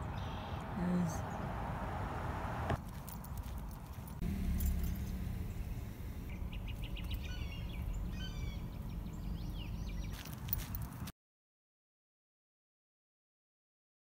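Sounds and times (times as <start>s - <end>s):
songbird chirping: 0.0s - 11.1s
steady low rumble: 4.1s - 10.1s.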